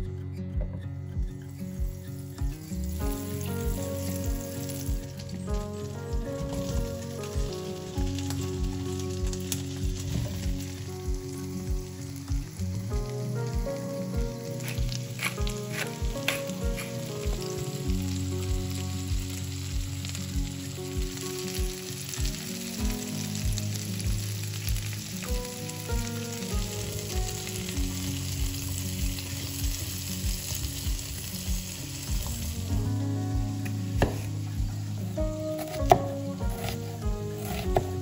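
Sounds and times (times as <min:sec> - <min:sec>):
background music with steady beat: 0:00.0 - 0:38.0
food sizzling in oil: 0:01.5 - 0:38.0.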